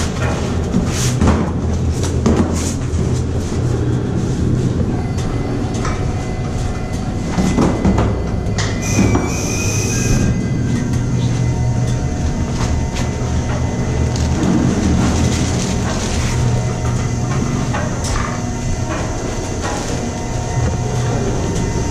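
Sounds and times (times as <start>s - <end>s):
low rumble inside tower: 0.0s - 21.9s
high squeal: 8.5s - 12.4s.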